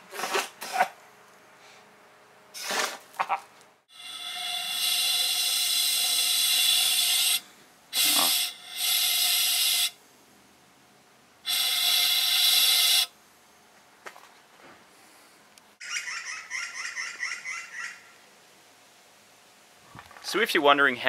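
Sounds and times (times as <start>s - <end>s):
compressed air hissing from hose: 3.9s - 10.0s, 11.4s - 13.1s.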